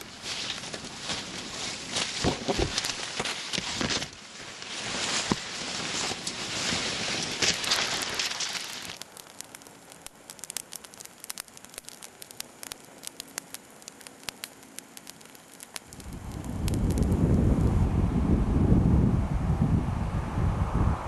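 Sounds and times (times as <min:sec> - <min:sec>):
scattered sharp clicks: 0:07.5 - 0:17.1
low rumbling noise: 0:15.0 - 0:21.0.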